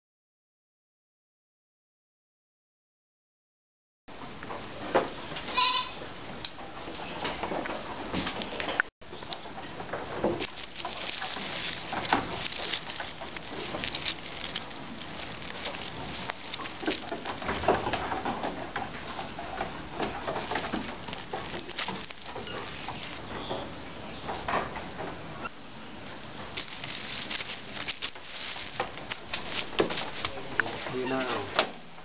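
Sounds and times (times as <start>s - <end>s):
dry straw crackling: 8.4s - 31.6s
hand rustling through compost: 9.1s - 24.3s, 25.6s - 31.5s.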